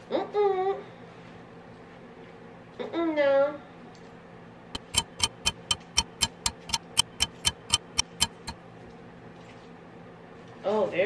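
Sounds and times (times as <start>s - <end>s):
clock ticking: 4.8s - 8.6s.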